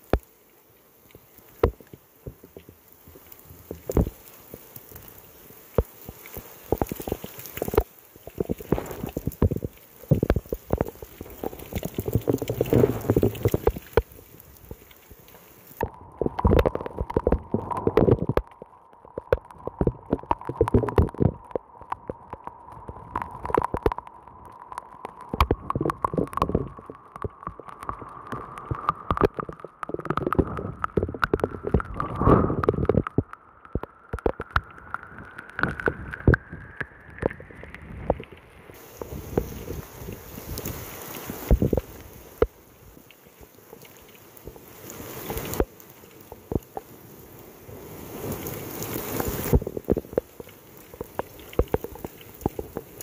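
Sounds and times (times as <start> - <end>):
rain hitting: 0.0 - 53.0.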